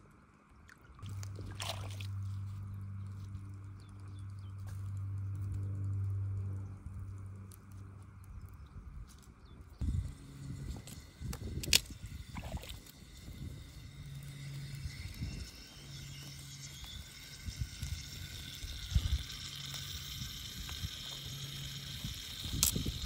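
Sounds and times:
faint low hum: 0.0 - 23.0
wind on microphone: 8.3 - 15.8, 16.8 - 23.0.

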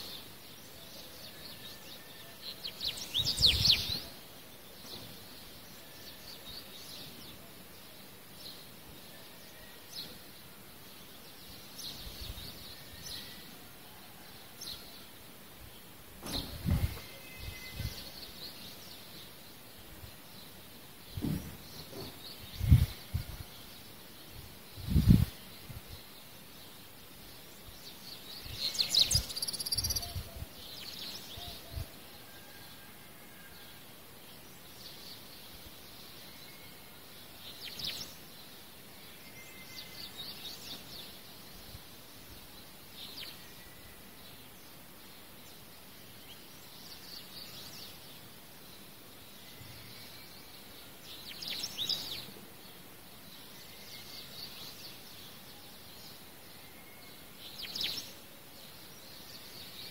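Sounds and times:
soft knocks: 21.2 - 22.2.

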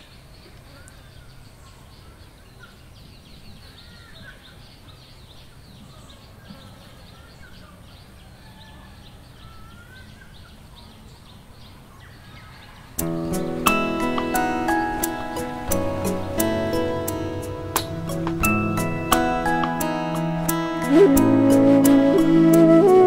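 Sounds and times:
birds calling and chirping: 0.0 - 23.0
music with plucked notes: 13.0 - 23.0.

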